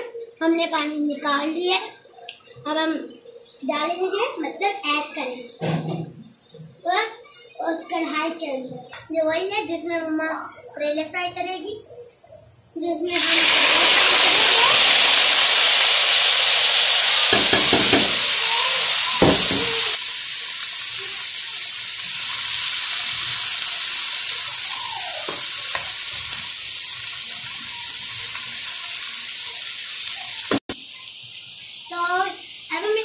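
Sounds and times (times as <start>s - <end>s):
onions sizzling in hot oil: 13.0s - 33.0s.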